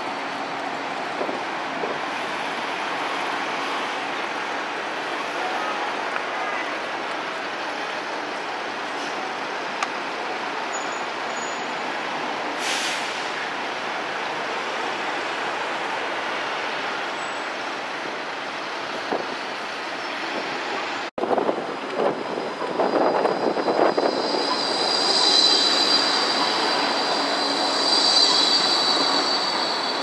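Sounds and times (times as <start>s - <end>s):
tram equipment humming: 13.5s - 30.0s.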